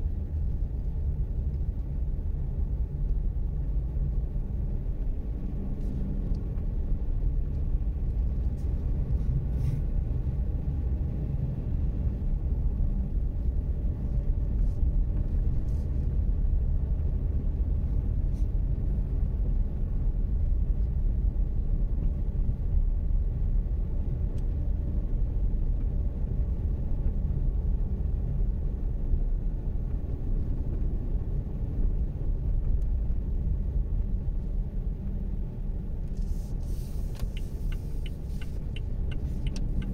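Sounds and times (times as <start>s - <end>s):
car engine and road noise: 0.0s - 39.9s
faint light ticks: 5.8s - 6.7s, 24.3s - 24.6s, 36.0s - 39.9s.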